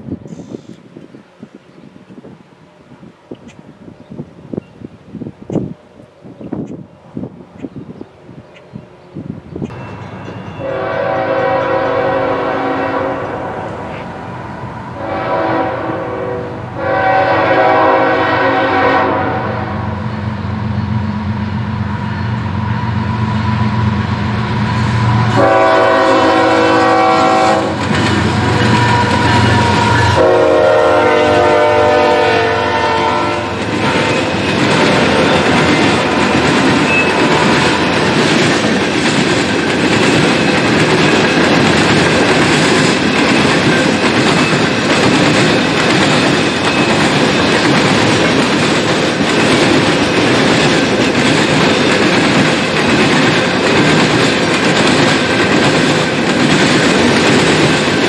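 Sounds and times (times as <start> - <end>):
diesel locomotive engine running: 5.8 - 58.0
locomotive horn blasts: 10.5 - 14.0, 15.0 - 20.0, 25.0 - 35.5, 36.9 - 38.0
train wheels clacking on rails: 20.0 - 58.0.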